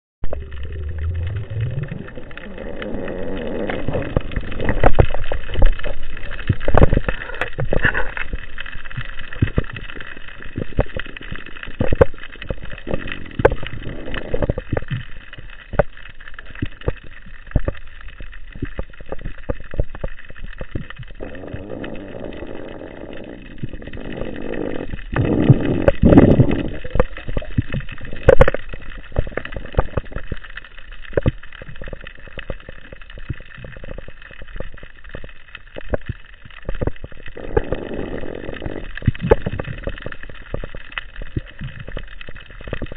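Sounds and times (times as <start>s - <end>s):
low sound rising in pitch: 0.2s - 2.5s
sharp underwater clicks and knocks: 0.2s - 42.9s
steady underwater background: 0.2s - 42.9s.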